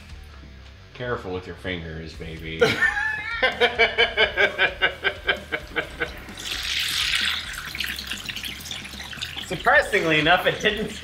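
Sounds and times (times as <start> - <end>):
person laughing: 2.6 - 6.2
oil sizzling in deep fryer: 5.1 - 11.0.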